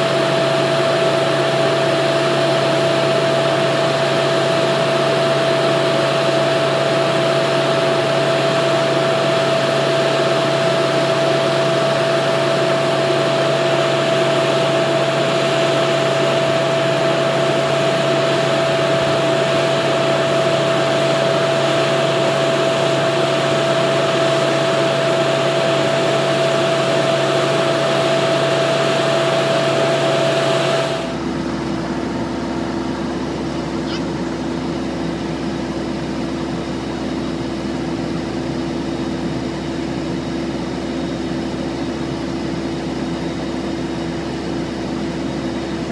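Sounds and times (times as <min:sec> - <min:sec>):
machine drone with humming tone: 0:00.0 - 0:45.9.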